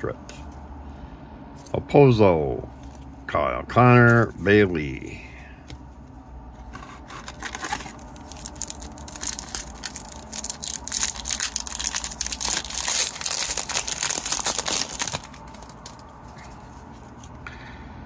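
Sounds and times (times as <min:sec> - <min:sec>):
wrapper crinkling: 0:07.2 - 0:17.3.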